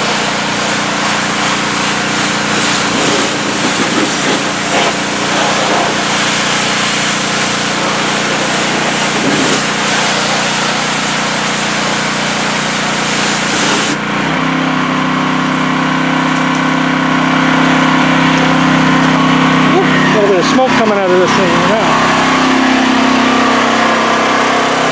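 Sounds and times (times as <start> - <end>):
high-pressure spray hissing: 0.0 - 14.0
gas engine droning: 0.0 - 24.9.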